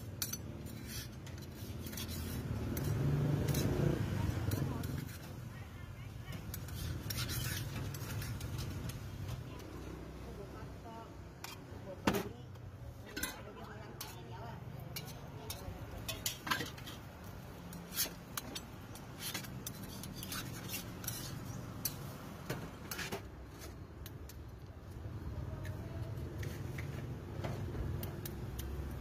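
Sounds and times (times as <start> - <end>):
metal utensils clinking on iron pans: 0.0 - 5.4, 6.3 - 9.7, 13.0 - 24.5
knife cutting pancake in pan: 0.2 - 5.4, 6.2 - 9.0, 14.9 - 23.2.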